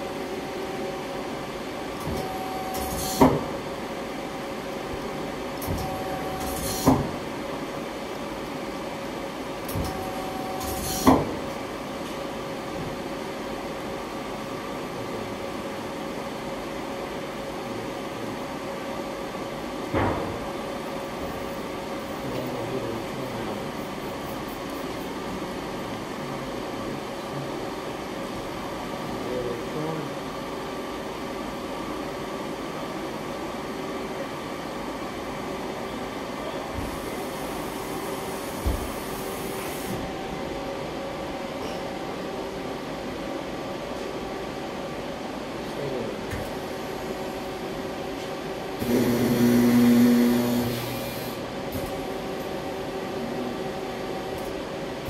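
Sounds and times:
lathe machinery hum: 0:23.0 - 0:55.0
lathe machine hum: 0:46.7 - 0:55.0.

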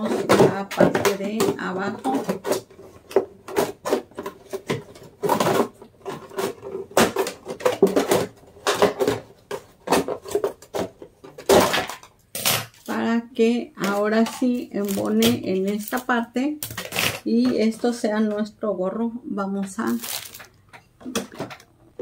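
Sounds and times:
scissors cutting plastic: 0:00.0 - 0:12.9, 0:13.8 - 0:17.3, 0:19.9 - 0:20.5
plastic jug crackling: 0:13.8 - 0:17.3, 0:19.8 - 0:22.0.

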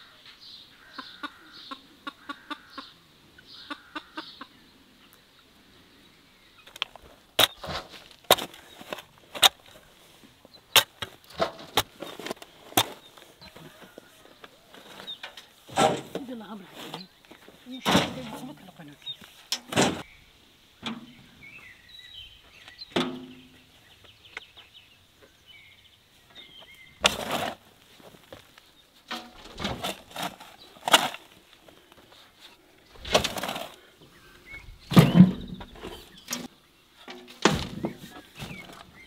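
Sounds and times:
birds chirping faintly: 0:00.0 - 0:39.0
shovels scraping soil: 0:06.9 - 0:10.2, 0:10.8 - 0:20.1, 0:27.0 - 0:28.5, 0:29.1 - 0:33.9
dirt thudding into trailer bed: 0:07.4 - 0:09.5, 0:15.6 - 0:16.4, 0:17.8 - 0:18.5, 0:19.6 - 0:20.1, 0:27.0 - 0:27.7, 0:29.1 - 0:31.3, 0:33.0 - 0:33.8, 0:34.9 - 0:36.5, 0:37.2 - 0:39.0.

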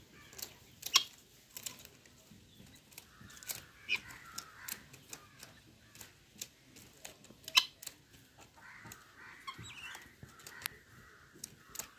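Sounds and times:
chickens rustling in leaves: 0:00.0 - 0:11.9
faint bird calls: 0:02.5 - 0:06.2, 0:07.5 - 0:11.9.

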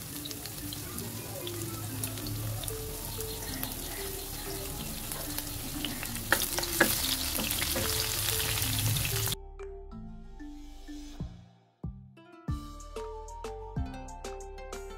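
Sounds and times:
onions sizzling in oil: 0:00.0 - 0:09.4.

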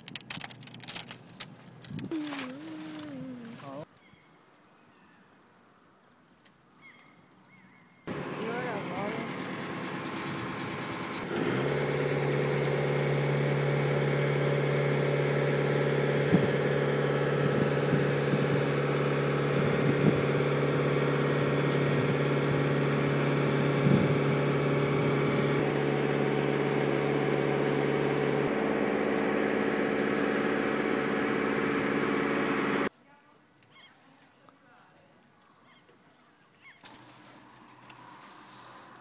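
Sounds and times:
boom lift engine running: 0:08.1 - 0:32.9.

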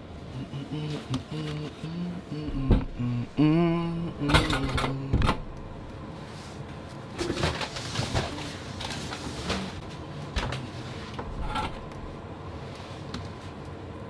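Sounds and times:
knocks and clicks of kitchen items: 0:02.5 - 0:03.1, 0:04.2 - 0:05.8.

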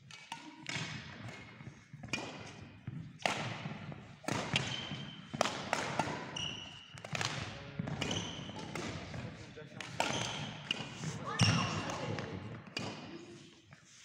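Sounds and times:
racket striking shuttlecock: 0:00.1 - 0:13.1
shoe squeaks on court floor: 0:04.6 - 0:05.4, 0:06.2 - 0:07.0, 0:08.0 - 0:09.0, 0:10.0 - 0:11.9.

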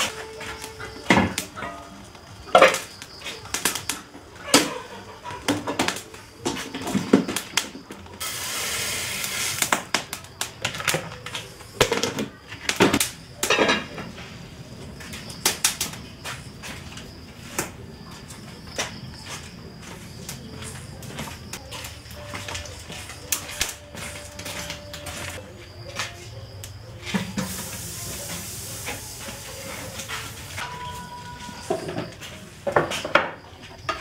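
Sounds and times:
knocks and clatter of objects: 0:05.4 - 0:08.0.

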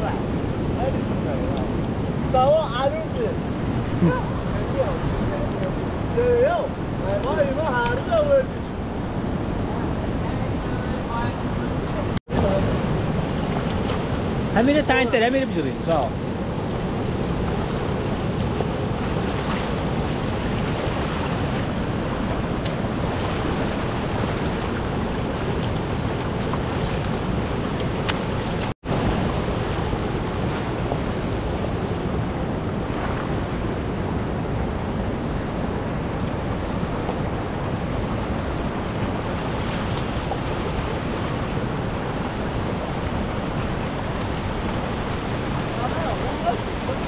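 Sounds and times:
river rushing over rocks: 0:09.7 - 0:47.0.

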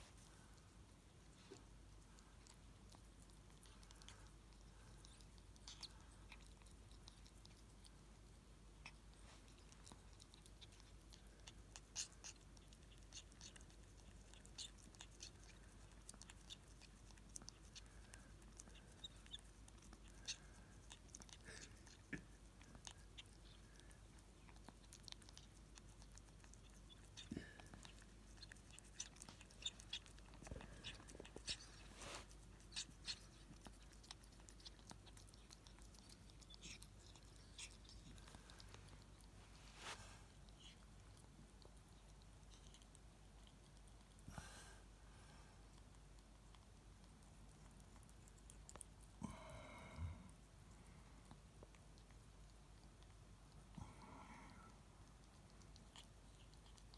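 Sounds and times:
animal licking and chewing: 0:00.0 - 0:44.3, 0:45.5 - 0:49.2, 0:50.3 - 0:53.8, 0:54.7 - 0:56.9
soft rush of noise: 0:38.1 - 0:41.9.

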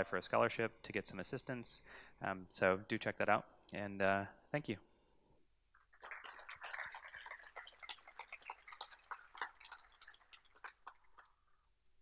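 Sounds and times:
audience applauding: 0:06.0 - 0:11.2.

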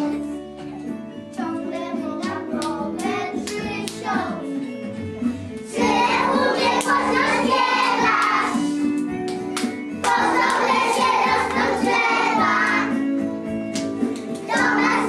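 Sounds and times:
children singing together: 0:05.7 - 0:08.8, 0:10.0 - 0:13.0, 0:14.4 - 0:15.0.

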